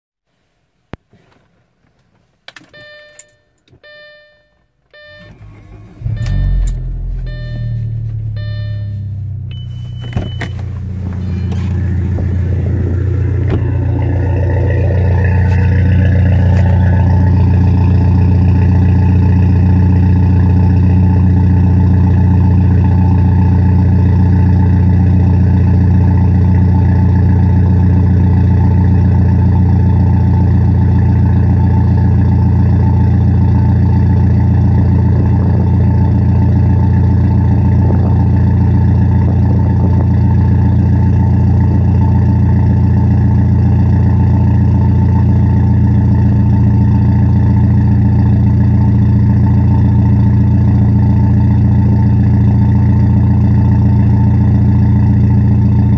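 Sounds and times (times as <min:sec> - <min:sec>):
car engine starting and idling: 0:01.1 - 0:55.9
car chime: 0:02.6 - 0:12.0.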